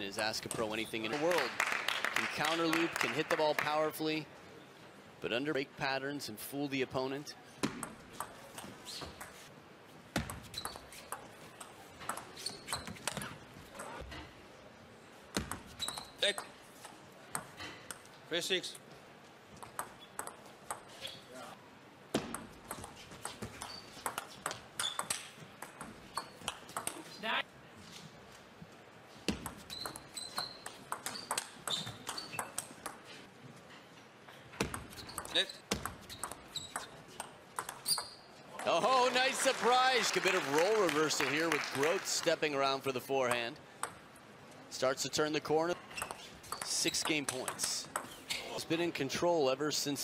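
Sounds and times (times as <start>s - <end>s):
brief high squeaks: 12.4s - 13.4s
rackets knocking ball: 19.6s - 21.0s, 22.1s - 27.1s, 29.3s - 33.1s, 34.6s - 38.8s, 43.8s - 44.1s, 45.9s - 48.2s.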